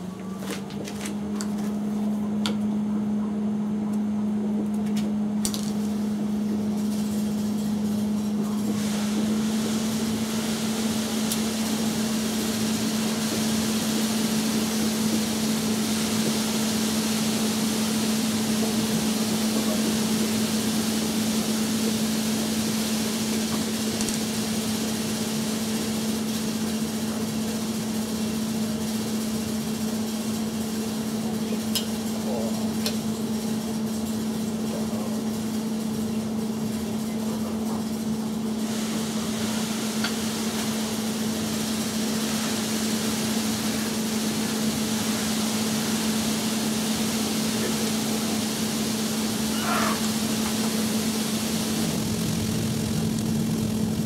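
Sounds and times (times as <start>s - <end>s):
small mower engine running: 5.4s - 54.0s
hiss: 8.6s - 27.6s, 38.6s - 52.4s.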